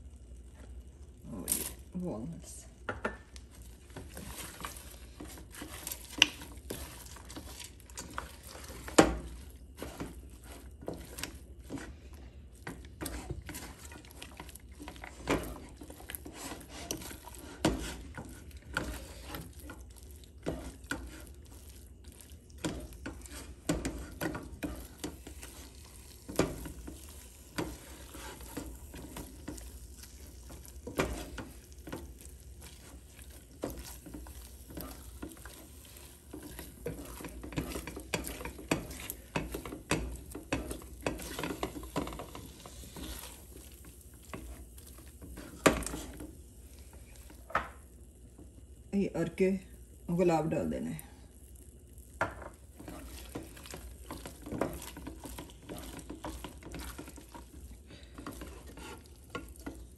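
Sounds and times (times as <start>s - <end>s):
light sizzle of ghee: 0.0s - 59.9s
spatula scraping sticky mass: 3.5s - 47.4s, 52.7s - 59.9s.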